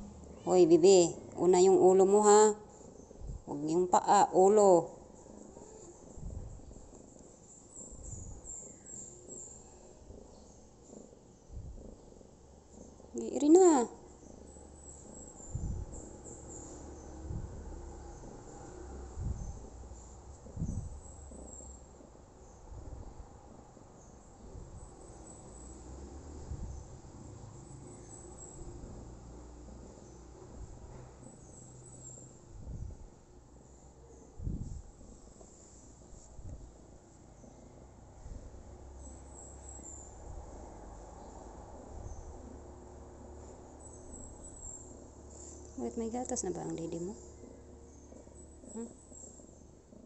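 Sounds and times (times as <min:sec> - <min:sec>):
soft rustling: 0:33.8 - 0:42.1.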